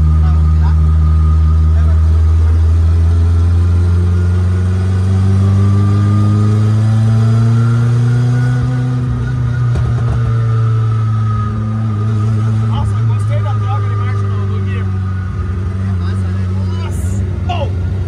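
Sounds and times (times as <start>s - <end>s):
turbocharged car engine revving: 0.0s - 18.0s
exhaust clicks and pops: 9.4s - 10.6s.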